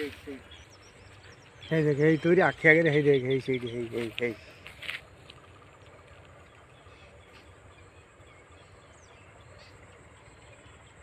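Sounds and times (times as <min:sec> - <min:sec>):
faint outdoor background noise: 0:00.0 - 0:11.0.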